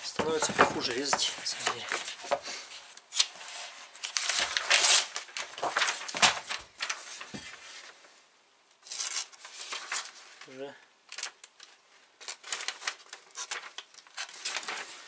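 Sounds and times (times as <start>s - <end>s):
paper rustling and crinkling: 0.0s - 8.2s, 8.8s - 15.0s.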